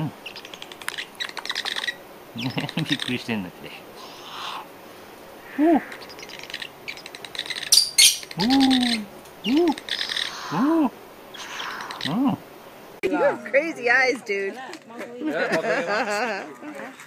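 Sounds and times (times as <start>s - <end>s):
soft low hoots: 3.9s - 12.5s.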